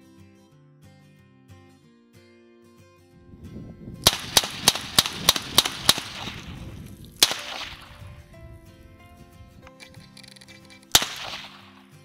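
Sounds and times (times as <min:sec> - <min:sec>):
revolver shots: 0:04.1 - 0:08.0, 0:10.9 - 0:11.8.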